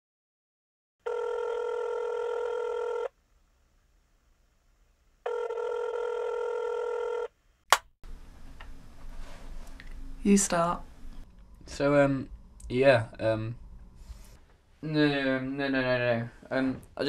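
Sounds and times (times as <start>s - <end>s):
telephone ringing: 1.0s - 3.1s, 5.3s - 7.3s.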